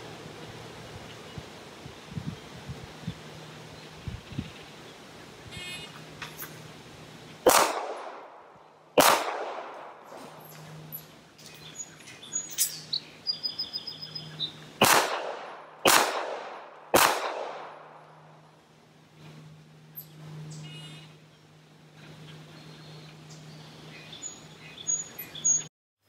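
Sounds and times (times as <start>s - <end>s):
pistol shots echoing: 7.4s - 8.4s, 9.0s - 10.0s, 14.8s - 18.0s.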